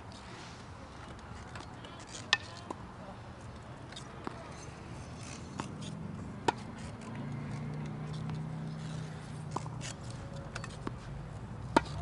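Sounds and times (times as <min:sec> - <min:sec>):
tennis ball struck by racket: 0:05.5 - 0:06.8, 0:11.6 - 0:12.0.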